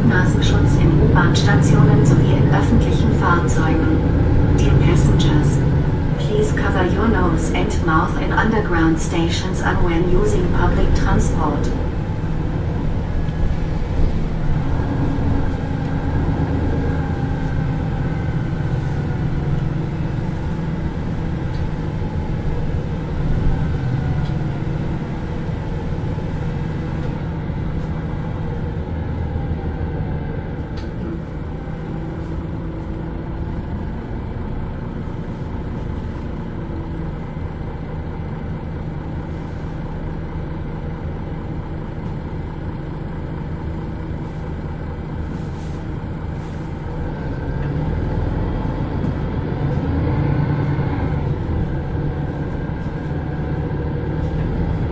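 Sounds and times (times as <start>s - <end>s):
bus diesel engine running: 0.0s - 54.9s.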